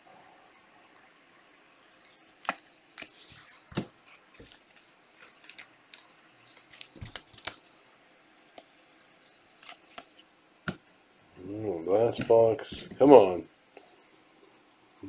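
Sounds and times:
cards clicking: 0:02.0 - 0:07.7
card packs rustling: 0:02.0 - 0:07.8, 0:09.0 - 0:10.2.

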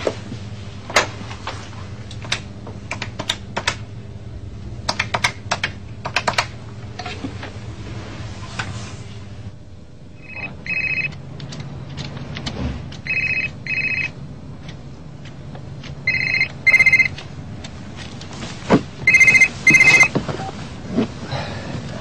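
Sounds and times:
mobile phone ringing: 0:10.2 - 0:11.2, 0:13.0 - 0:14.2, 0:16.1 - 0:17.2, 0:19.0 - 0:20.2.

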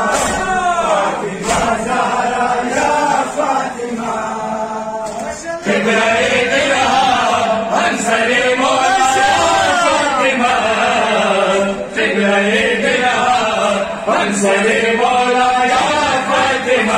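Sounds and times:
crowd of men chanting: 0:00.0 - 0:16.9
hands slapping chests: 0:01.4 - 0:02.0.

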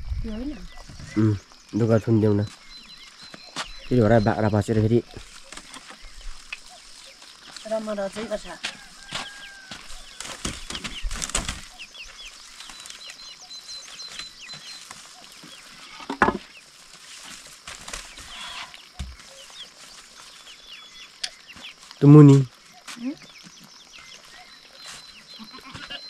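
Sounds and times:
small birds chirping: 0:00.0 - 0:26.0
bamboo mat knocking and scraping: 0:08.2 - 0:11.7, 0:15.4 - 0:19.3.

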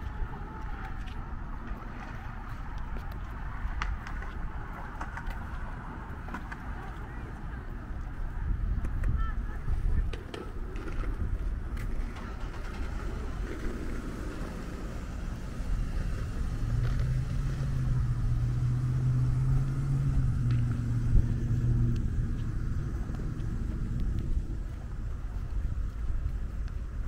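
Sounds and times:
low rumble of traffic: 0:00.0 - 0:27.0
car engine humming: 0:12.2 - 0:26.3.

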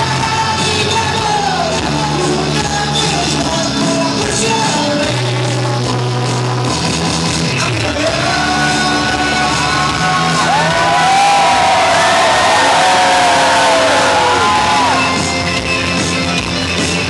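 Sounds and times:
man singing into a microphone: 0:00.0 - 0:06.8, 0:07.4 - 0:12.0
loud rock music: 0:00.0 - 0:17.0
audience cheering and whooping: 0:09.7 - 0:15.3.

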